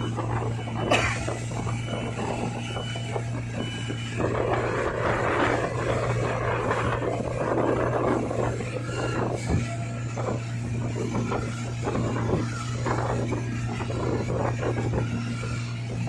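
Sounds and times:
churning wake rushing: 0:00.0 - 0:16.0
outboard motor humming: 0:00.0 - 0:16.0.

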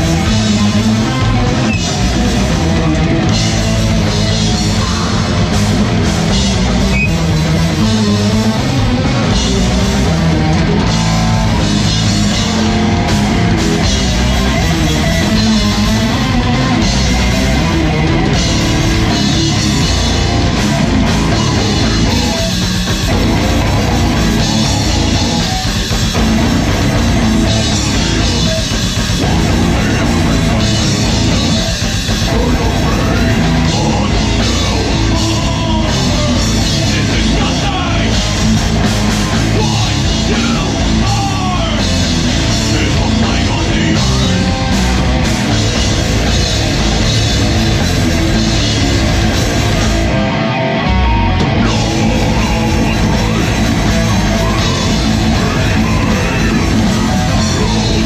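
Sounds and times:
bass guitar: 0:00.0 - 0:58.0
distorted electric guitars: 0:00.0 - 0:58.0
drum kit: 0:00.0 - 0:58.0
person singing into microphone: 0:27.8 - 0:38.4, 0:39.4 - 0:45.0, 0:51.6 - 0:58.0.

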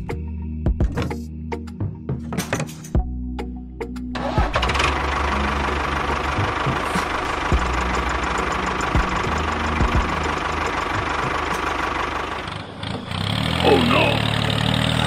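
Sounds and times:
tractor engine running: 0:04.1 - 0:15.0.

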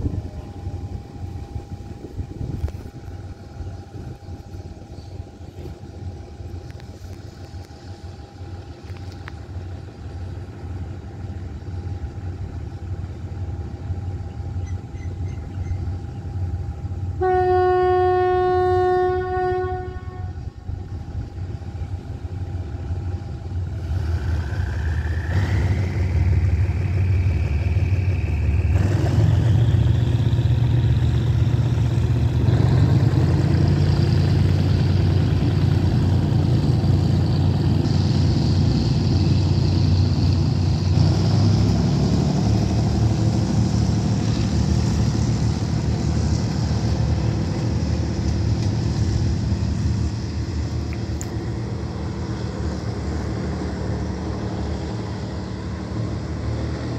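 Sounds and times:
engine whine rising in pitch: 0:00.0 - 0:17.2, 0:19.5 - 0:56.9
diesel locomotive rumbling: 0:00.0 - 0:56.9
two-tone train horn: 0:16.9 - 0:20.9.

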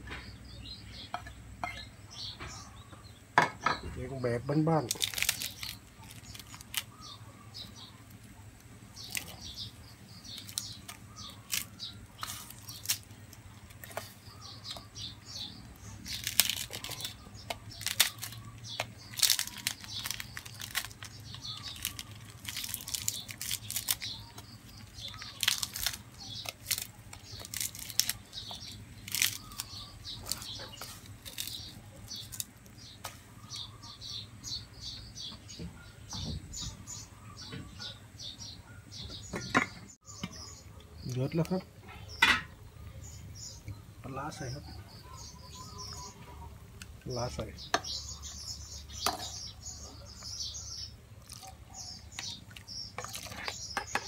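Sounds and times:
grilled fish crackling and tearing: 0:04.5 - 0:34.2, 0:47.8 - 0:54.0.

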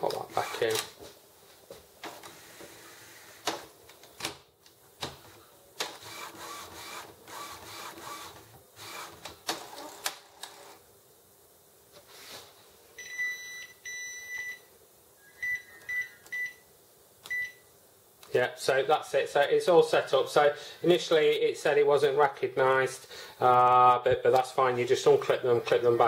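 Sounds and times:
printer carriage motor whirring: 0:05.8 - 0:10.8
printer beeps: 0:13.0 - 0:14.7, 0:15.4 - 0:16.6.

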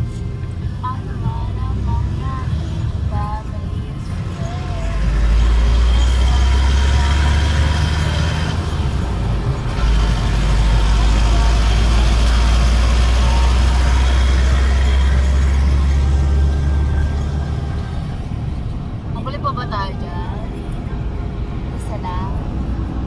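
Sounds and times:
car road and engine rumble: 0:00.0 - 0:23.0.

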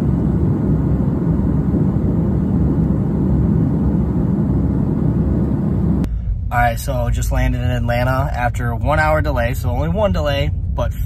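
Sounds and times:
rushing air: 0:00.0 - 0:07.3
airliner engines rumbling: 0:00.0 - 0:11.0.

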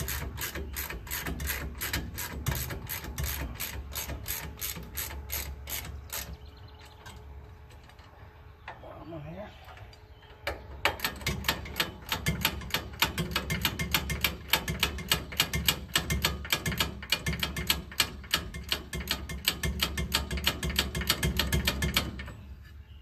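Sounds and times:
ratchet clicking: 0:00.0 - 0:06.4, 0:10.9 - 0:22.2.

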